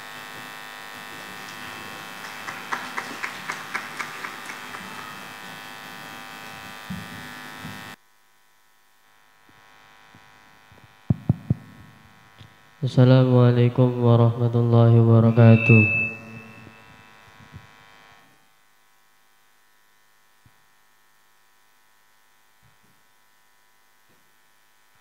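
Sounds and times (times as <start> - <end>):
electrical hum and buzz: 0.0 - 8.0.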